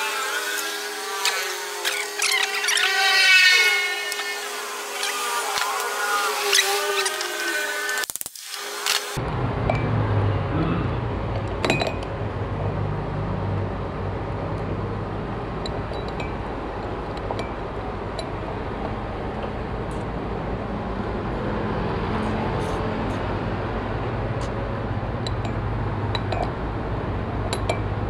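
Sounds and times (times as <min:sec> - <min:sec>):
engine running at low revs: 0:09.2 - 0:28.0.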